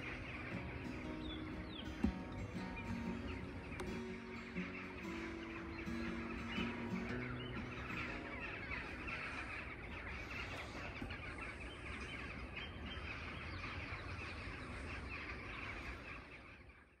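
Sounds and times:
geese honking in flight: 0.0s - 16.9s.

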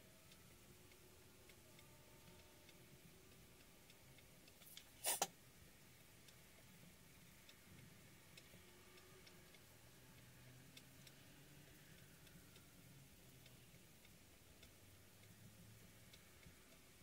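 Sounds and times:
faint ticking: 0.0s - 17.0s
stylus scraping paper: 5.0s - 5.3s.

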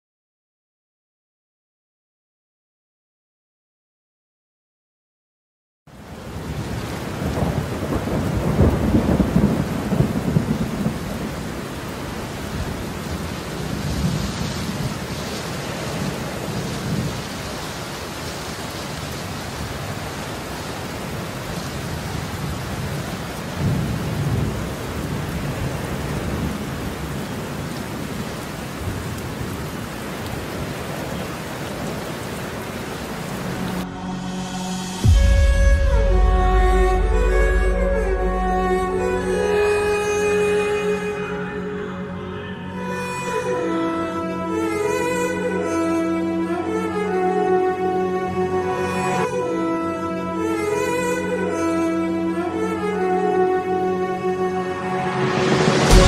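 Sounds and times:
steady rain: 5.9s - 56.0s
rolling thunder: 6.6s - 13.0s.

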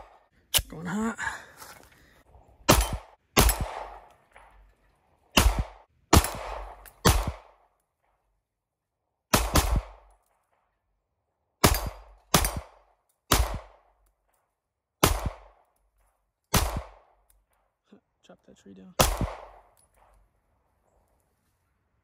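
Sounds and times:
pistol shots with echo: 2.6s - 4.6s, 5.3s - 7.7s, 9.3s - 10.2s, 11.6s - 14.0s, 15.0s - 15.7s, 16.5s - 17.2s, 19.0s - 20.2s.

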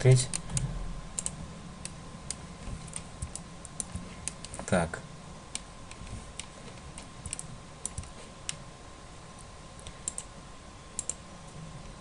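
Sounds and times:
mouse and keyboard clicks: 5.6s - 8.6s.

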